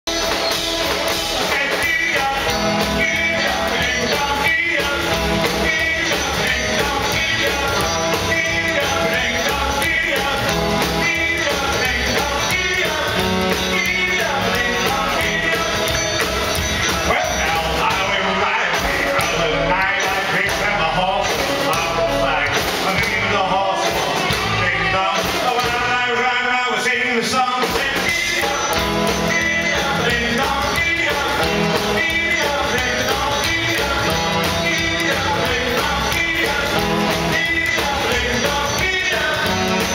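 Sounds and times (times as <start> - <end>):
drum kit beat: 0.0 - 39.9
electric guitars: 0.1 - 39.9
man singing: 0.1 - 39.9.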